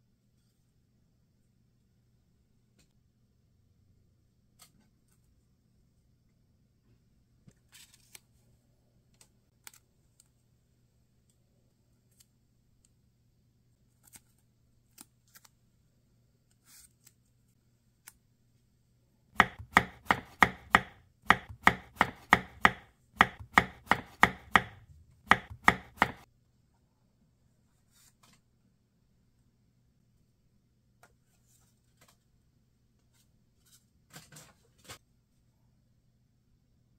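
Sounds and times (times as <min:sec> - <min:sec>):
knife chopping on cutting board: 0:19.4 - 0:26.2.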